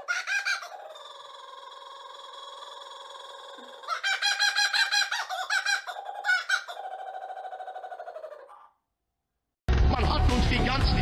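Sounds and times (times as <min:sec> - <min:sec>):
kookaburra laughing call: 0:00.0 - 0:08.7.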